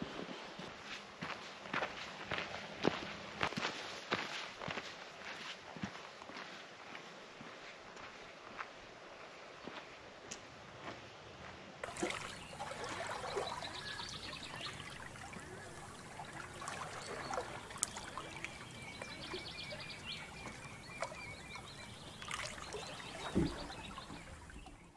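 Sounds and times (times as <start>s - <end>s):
small waves lapping among boulders: 11.8s - 24.9s.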